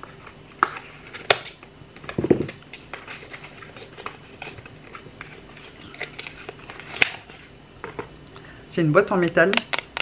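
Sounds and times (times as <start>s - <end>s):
package rustling: 0.6s - 8.1s.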